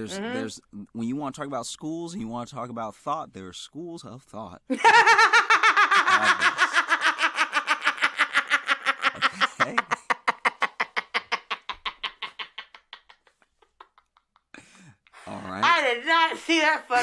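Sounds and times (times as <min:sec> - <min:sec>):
woman laughing hard: 0:04.7 - 0:14.2.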